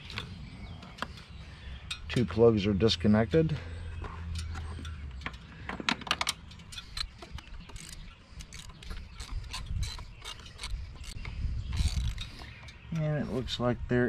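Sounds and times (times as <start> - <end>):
socket ratchet clicking: 6.1 - 12.8.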